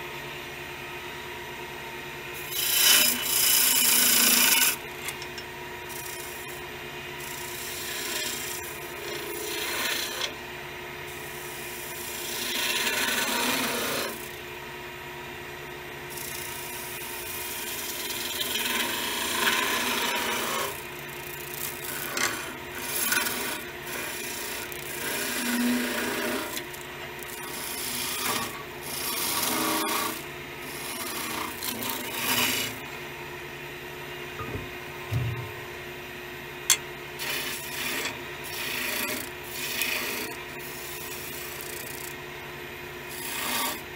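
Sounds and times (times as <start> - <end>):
chisel cutting wood on lathe: 2.4 - 10.4, 11.1 - 14.4, 16.1 - 32.9, 37.2 - 42.2, 43.0 - 43.9
lathe motor hum: 2.4 - 10.4, 11.1 - 14.4, 16.1 - 32.9, 36.7 - 42.2, 43.0 - 43.9.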